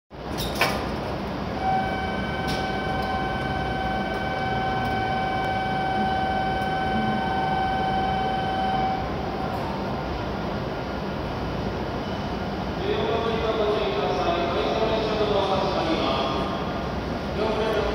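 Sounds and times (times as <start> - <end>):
train rumble: 0.2 - 17.9
steady high tone: 1.6 - 9.4.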